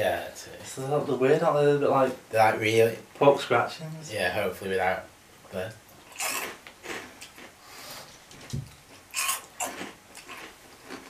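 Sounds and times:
crackers being crunched: 6.0 - 7.6, 8.4 - 11.0.

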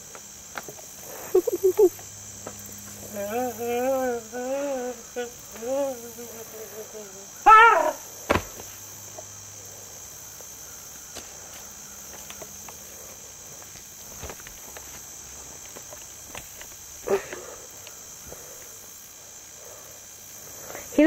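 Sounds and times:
insects chirping: 0.0 - 21.0
footsteps on rocks: 11.1 - 12.8, 13.5 - 17.0.

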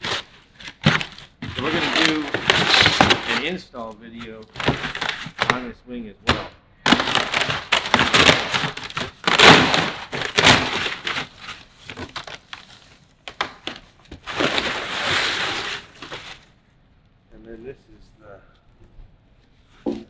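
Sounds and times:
cardboard flaps scraping: 0.0 - 5.6, 6.9 - 16.5
packing paper crumpling: 0.0 - 5.6, 6.9 - 16.5
plastic sleeve rustling: 0.0 - 5.6, 6.9 - 16.6.

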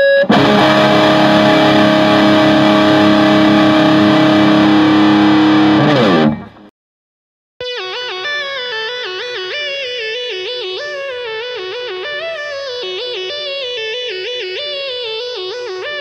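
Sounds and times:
distorted electric guitar chord: 0.3 - 6.7.

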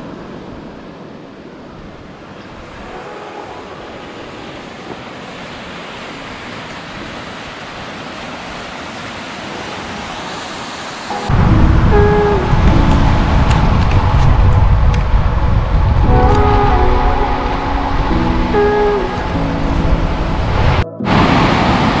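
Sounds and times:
river rushing over rocks: 1.8 - 22.0
wind on microphone: 11.3 - 22.0.

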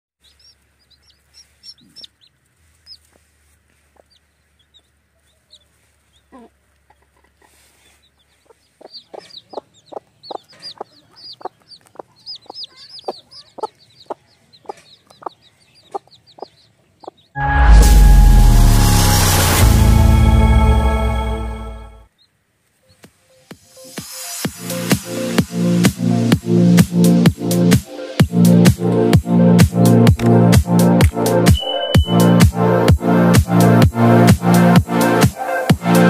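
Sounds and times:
hen clucking: 0.2 - 3.2, 3.8 - 17.3
chicks peeping: 0.2 - 17.4, 22.2 - 23.2
loud music: 17.4 - 22.0, 24.4 - 36.0.

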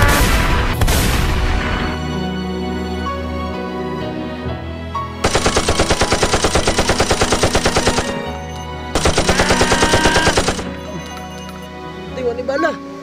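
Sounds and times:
background music: 0.0 - 13.0
machine-gun bursts: 5.2 - 8.3, 9.0 - 10.8.

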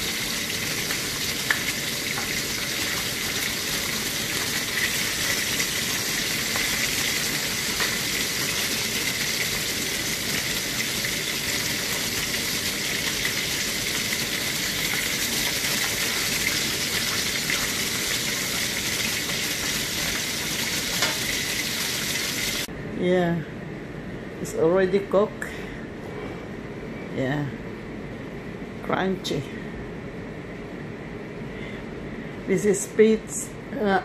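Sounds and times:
fish sizzling in hot oil: 0.0 - 22.7.

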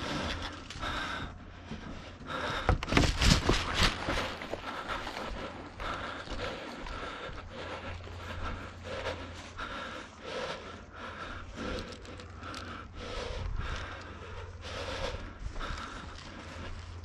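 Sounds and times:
heavy panting breaths: 0.0 - 17.0.

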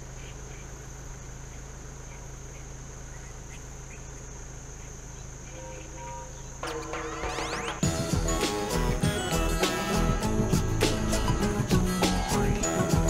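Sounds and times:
faint chirps: 0.0 - 13.0
insects droning: 0.0 - 13.0
low steady hum: 0.0 - 13.0.

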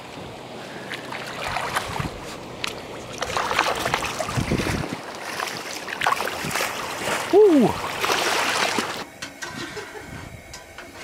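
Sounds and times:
fish splashing in shallow water: 0.6 - 9.1
wind noise on microphone: 1.4 - 2.4, 3.2 - 5.2, 6.2 - 7.3, 9.5 - 11.0.

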